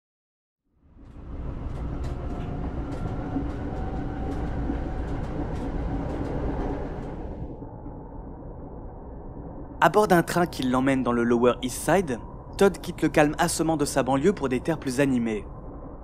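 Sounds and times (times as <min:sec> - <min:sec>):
subway train rumbling past: 0:00.9 - 0:07.6
rail clicks: 0:01.0 - 0:07.4.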